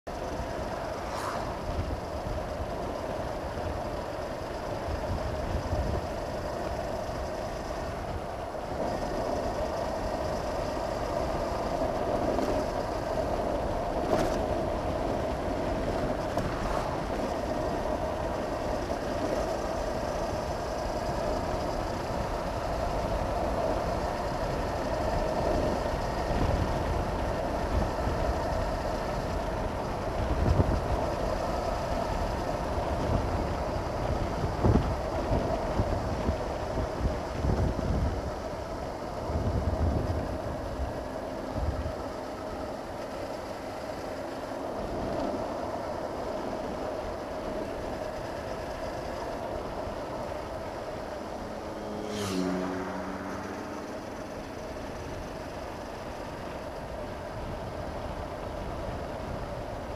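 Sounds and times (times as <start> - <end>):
wind rushing over microphone: 0.1 - 43.0
motorcycle engine running: 0.1 - 59.9.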